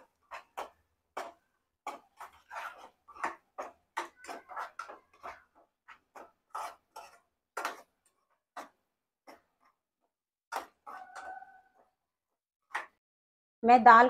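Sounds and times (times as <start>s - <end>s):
metal spatula scraping pan: 0.0s - 9.8s, 10.5s - 11.9s.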